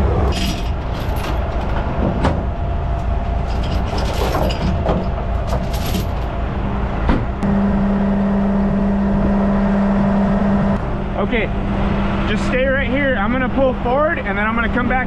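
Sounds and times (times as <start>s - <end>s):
steady low hum: 0.0s - 15.0s
steel chains clinking: 0.3s - 1.8s, 3.0s - 6.4s.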